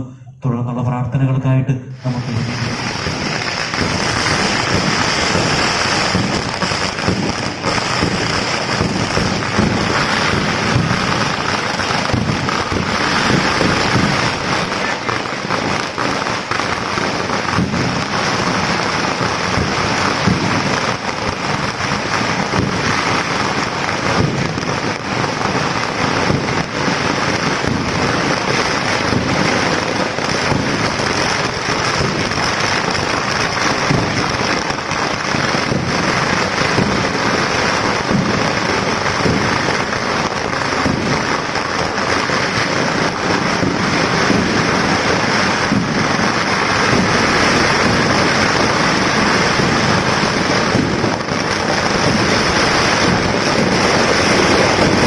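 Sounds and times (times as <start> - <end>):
firecrackers crackling: 2.0 - 55.0.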